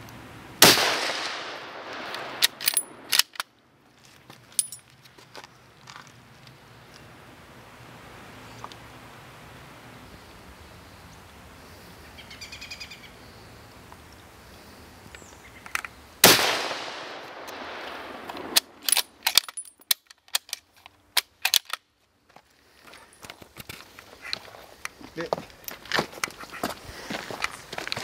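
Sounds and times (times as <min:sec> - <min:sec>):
rifle shot with echo: 0:00.6 - 0:03.1, 0:16.2 - 0:18.7.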